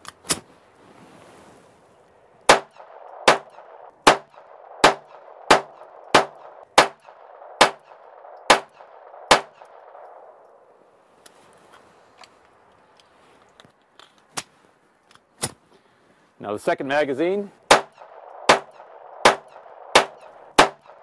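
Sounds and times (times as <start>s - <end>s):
pistol shots: 2.5s - 10.1s, 17.7s - 21.0s.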